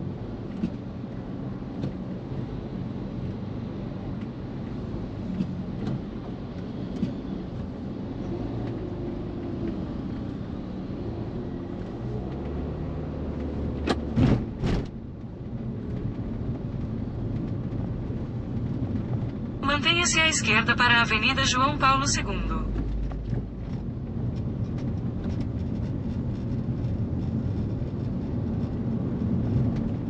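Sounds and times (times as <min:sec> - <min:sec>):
car engine and road rumble: 0:00.0 - 0:30.0.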